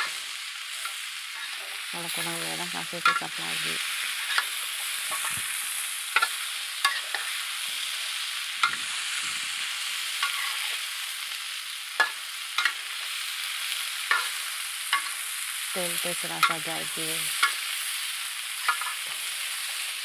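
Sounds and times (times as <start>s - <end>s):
food sizzling in a wok: 0.0s - 20.0s
metal spatula scraping a pan: 0.8s - 1.8s, 4.1s - 5.4s, 6.1s - 7.4s, 10.2s - 10.8s.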